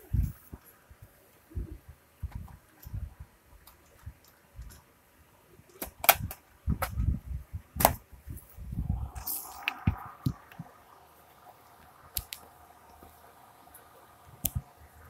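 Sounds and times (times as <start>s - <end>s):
sharp clicks: 11.6s - 13.2s.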